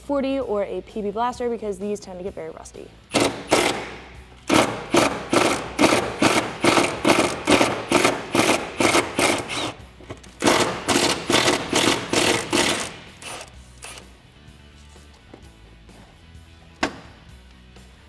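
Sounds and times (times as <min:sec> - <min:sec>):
impact wrench hammering: 0:03.1 - 0:14.0.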